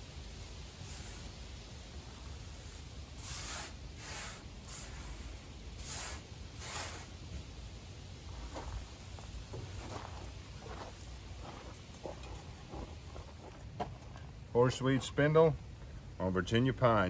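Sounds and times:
hand sweeping pine needles: 0:00.0 - 0:13.4.

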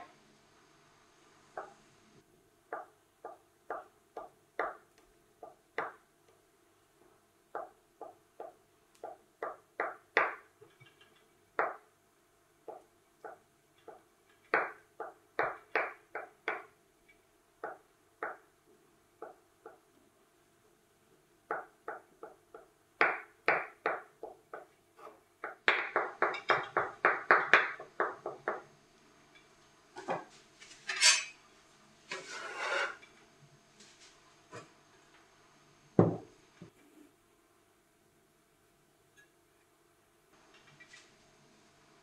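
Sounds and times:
metal scraper scraping board: 0:32.1 - 0:33.0.

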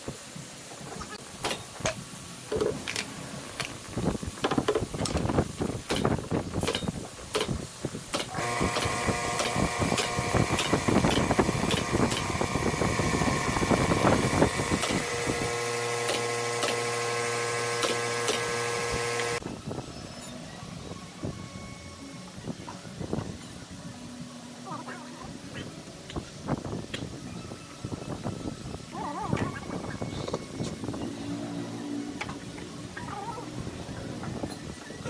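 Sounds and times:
pneumatic nail gun firing: 0:01.4 - 0:02.0, 0:05.8 - 0:19.4
steady machine hum: 0:07.7 - 0:19.7.

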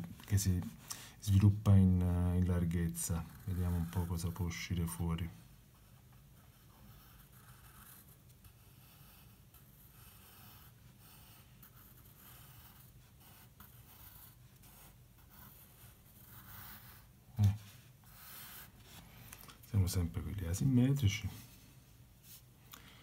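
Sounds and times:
pencil scratching on paper: 0:02.2 - 0:19.0.

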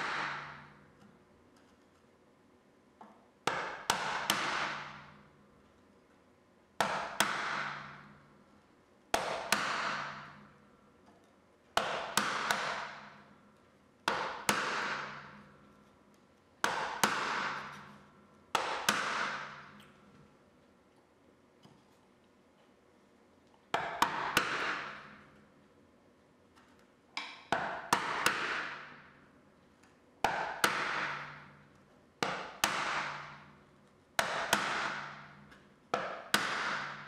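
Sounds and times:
mallet striking chisel: 0:00.0 - 0:00.8, 0:03.0 - 0:05.1, 0:06.8 - 0:08.1, 0:09.1 - 0:10.4, 0:11.8 - 0:13.2, 0:14.0 - 0:15.6, 0:16.6 - 0:20.0, 0:23.7 - 0:25.3, 0:27.2 - 0:29.2, 0:30.2 - 0:31.6, 0:32.2 - 0:33.6, 0:34.2 - 0:37.0.

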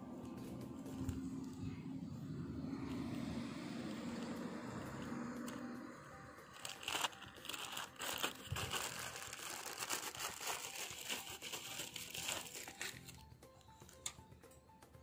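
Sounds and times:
crinkling and rustling: 0:06.5 - 0:14.2.

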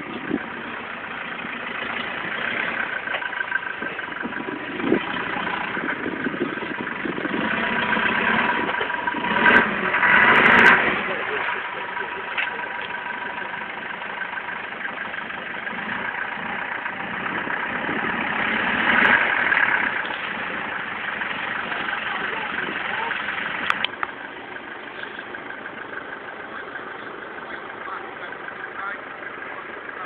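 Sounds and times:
vehicle engine running: 0:00.0 - 0:30.0.

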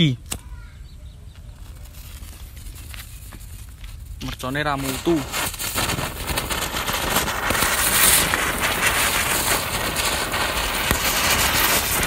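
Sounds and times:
sharp little pops: 0:00.2 - 0:00.6, 0:04.2 - 0:12.0
fireworks hissing crackle: 0:01.4 - 0:12.0.

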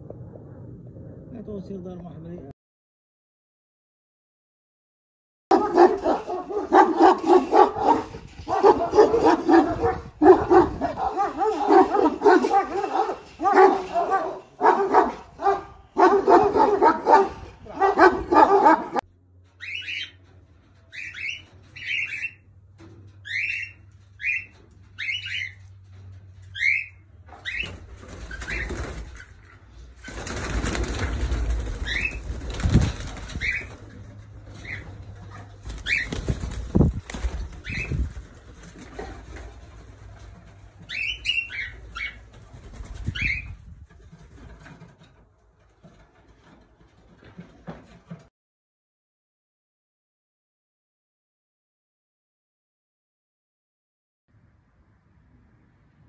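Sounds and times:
dogs barking excitedly: 0:05.5 - 0:19.0, 0:34.5 - 0:36.4
wings flapping against mesh: 0:27.5 - 0:41.2, 0:41.8 - 0:45.1.

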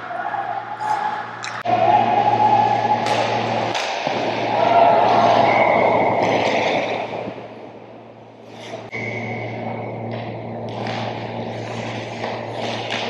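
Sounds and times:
spectators cheering: 0:00.0 - 0:06.5
low hum: 0:00.0 - 0:13.0
skates scraping on ice: 0:10.7 - 0:13.0.

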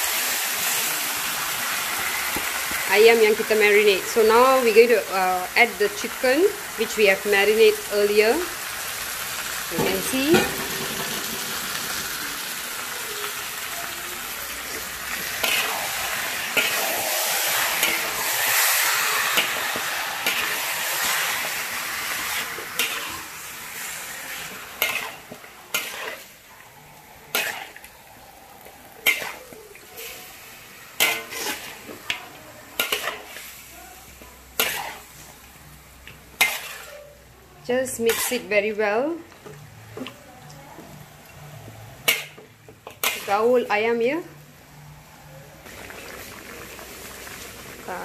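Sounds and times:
chicken sizzling in a wok: 0:00.0 - 0:48.0
metal spatula scraping a wok: 0:09.7 - 0:12.0, 0:14.4 - 0:30.3, 0:31.0 - 0:33.6, 0:34.6 - 0:35.5, 0:36.3 - 0:37.2, 0:37.8 - 0:39.0, 0:40.9 - 0:43.8.

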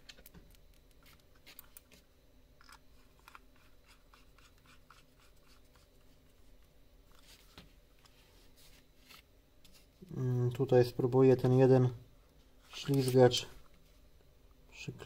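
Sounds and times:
screwdriver clicking and scratching: 0:02.6 - 0:05.8.

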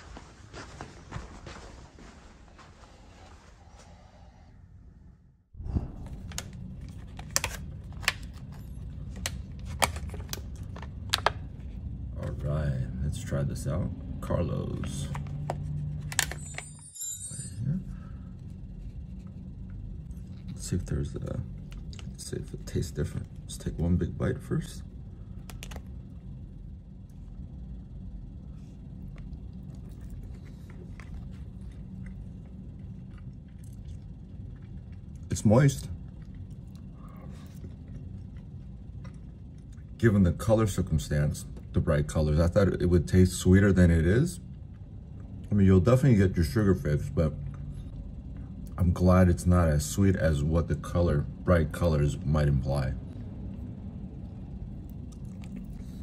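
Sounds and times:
low room rumble: 0:00.0 - 0:56.0.

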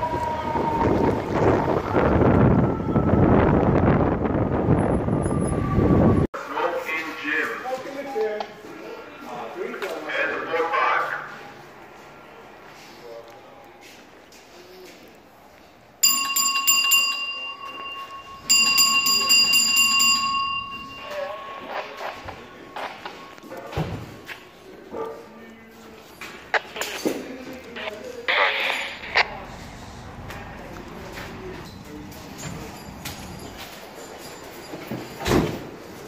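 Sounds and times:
street traffic rumble: 0:00.0 - 0:06.3, 0:10.8 - 0:36.0
wind buffeting microphone: 0:00.0 - 0:06.3
alarm bell ringing: 0:16.0 - 0:23.2, 0:32.3 - 0:35.2
fire engine driving off: 0:29.2 - 0:33.6.

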